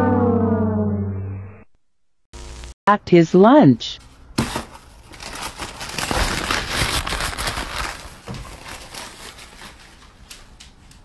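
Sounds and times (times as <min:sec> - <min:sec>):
paper bag crinkling: 0:04.5 - 0:10.3.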